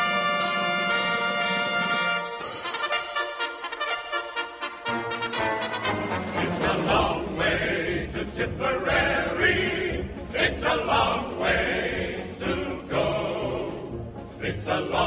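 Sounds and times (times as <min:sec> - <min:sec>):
instrumental accompaniment: 0:00.0 - 0:11.6
choir singing a marching song: 0:05.4 - 0:15.0.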